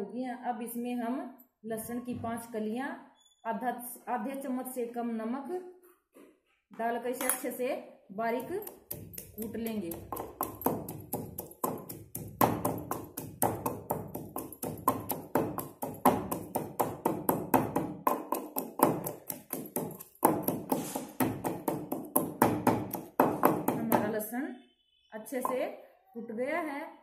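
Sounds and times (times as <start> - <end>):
pestle pounding in stone mortar: 8.4 - 24.1.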